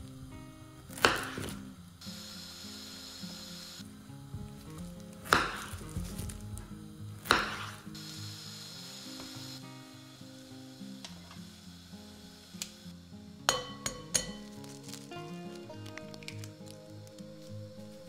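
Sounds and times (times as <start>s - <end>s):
knife chopping on cutting board: 1.0s - 1.6s, 5.3s - 6.0s, 7.2s - 7.8s.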